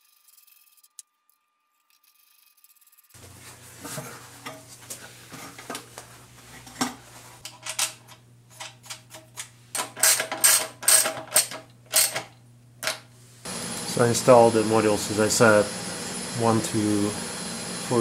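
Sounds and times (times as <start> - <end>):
metal tools clinking: 9.8 - 13.0.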